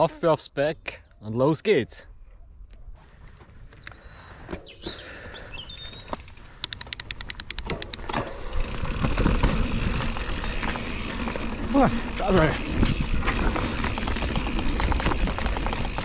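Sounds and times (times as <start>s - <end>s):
bird chirps: 3.8s - 6.2s
bike freewheel ticking: 5.7s - 16.0s
tyres rolling: 7.8s - 16.0s
wind noise: 8.1s - 16.0s.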